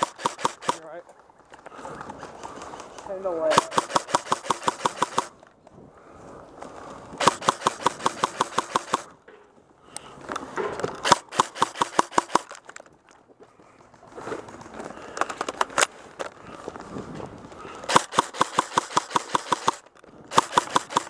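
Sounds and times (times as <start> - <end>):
paintball marker rapid firing: 0.0 - 0.9, 3.4 - 5.4, 7.2 - 9.2, 11.0 - 12.6, 17.9 - 21.0.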